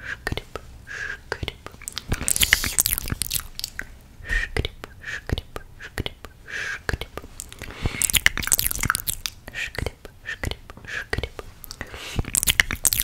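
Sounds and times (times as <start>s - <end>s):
person whispering: 0.0s - 13.0s
wet lip smacks and mouth clicks: 1.3s - 4.0s, 6.9s - 13.0s.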